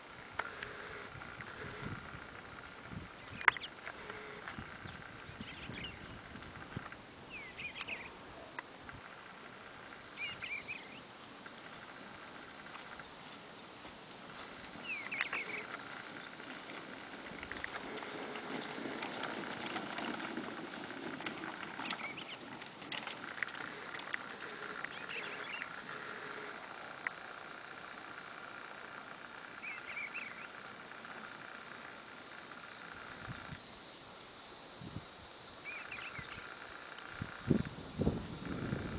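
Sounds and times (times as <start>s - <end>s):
birds chirping: 0.4s - 6.4s, 7.3s - 33.6s, 35.6s - 38.9s
dummy dragging and rattling: 8.8s - 33.6s
horse hoofbeats on dirt: 14.3s - 26.4s.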